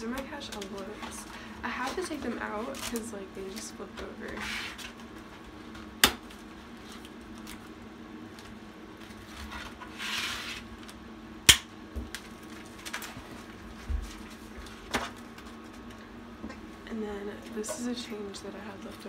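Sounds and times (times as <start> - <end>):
plastic rustling: 0.0 - 11.0, 12.0 - 16.0.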